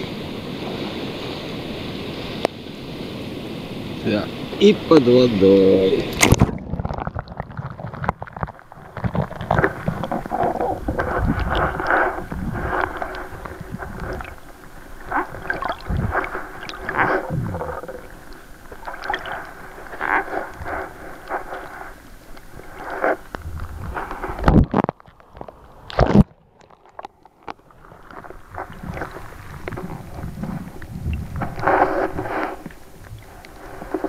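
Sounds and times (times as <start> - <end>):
underwater gurgling and sloshing: 0.0 - 34.0.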